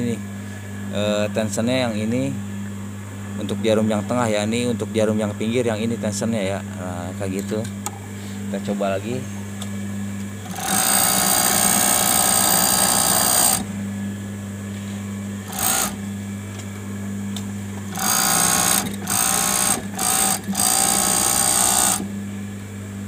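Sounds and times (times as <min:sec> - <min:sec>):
steady low hum: 0:00.0 - 0:23.0
overlock sewing machine running: 0:10.4 - 0:13.7, 0:15.4 - 0:16.0, 0:17.8 - 0:22.1.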